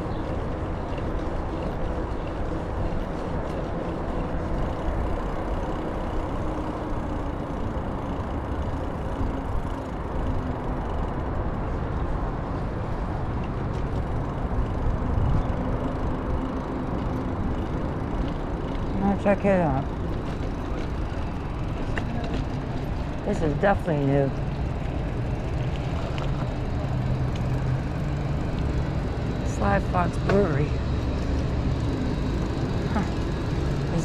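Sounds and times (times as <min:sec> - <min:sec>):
bicycle road noise: 0:00.0 - 0:34.0
motor traffic passing: 0:00.0 - 0:34.0.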